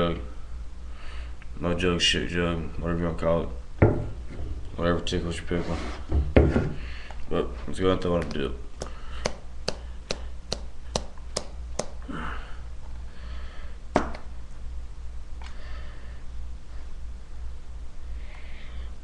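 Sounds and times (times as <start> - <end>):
low electrical hum: 0.0 - 19.0
faint breathing: 0.8 - 1.4, 6.7 - 7.3, 8.8 - 11.0, 12.0 - 13.8, 15.4 - 17.0, 18.1 - 19.0.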